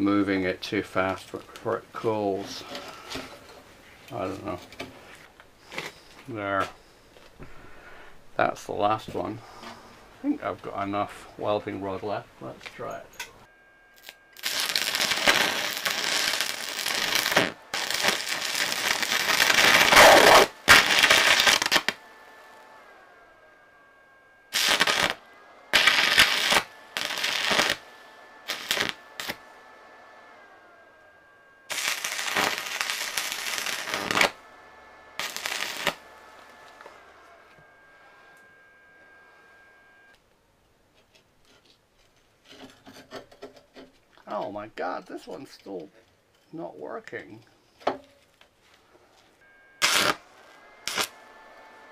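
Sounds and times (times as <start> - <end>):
welding arc crackling: 13.9 - 22.6, 24.5 - 29.5, 31.7 - 34.5, 35.2 - 37.0, 49.8 - 51.2.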